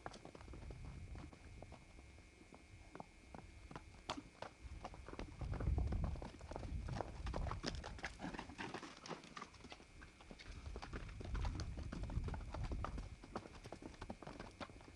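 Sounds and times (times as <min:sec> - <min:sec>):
hooves trotting on dirt: 0:00.0 - 0:14.9.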